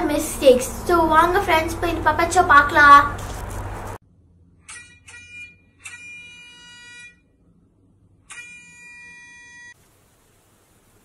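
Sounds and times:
vehicle horn honking: 4.7s - 7.2s.

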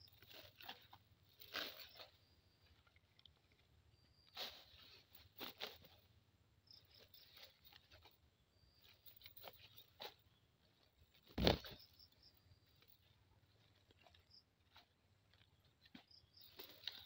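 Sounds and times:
rustling of grass and net: 0.0s - 17.0s
faint high insect chirps: 6.6s - 10.5s, 11.3s - 13.3s.

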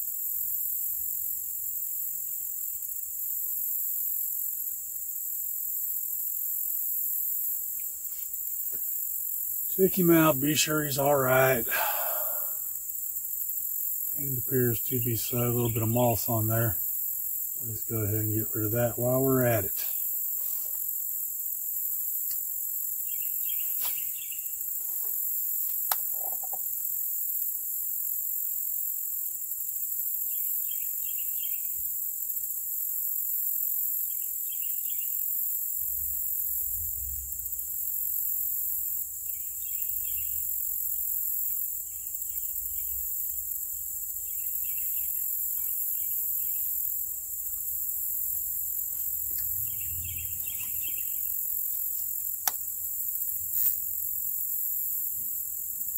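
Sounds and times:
insect chorus drone: 0.0s - 55.9s
bird chirps: 44.2s - 46.7s, 49.2s - 51.4s.

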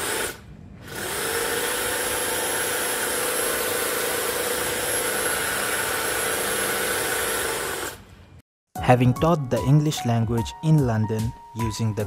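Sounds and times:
electric hedge trimmer buzzing: 0.0s - 8.0s.

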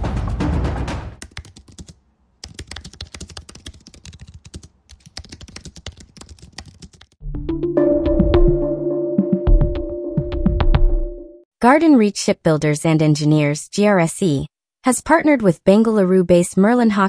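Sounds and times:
music: 0.0s - 1.2s, 7.2s - 11.5s
fast typing on keyboard: 1.2s - 7.2s.

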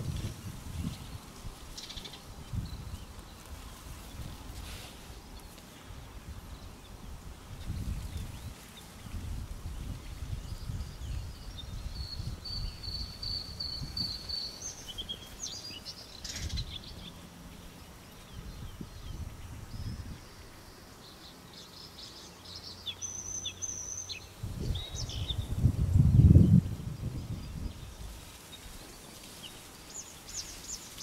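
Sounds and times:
bird chirps: 10.4s - 25.6s.

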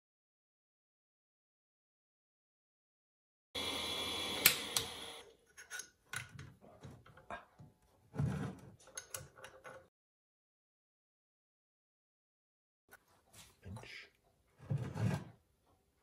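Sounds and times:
small metal parts clicking and knocking: 8.8s - 9.9s.

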